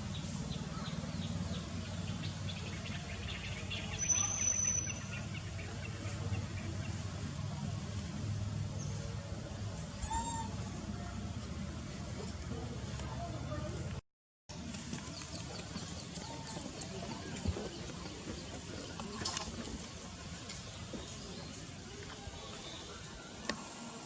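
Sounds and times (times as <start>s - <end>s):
small birds chirping: 0.0s - 7.1s, 14.6s - 23.5s.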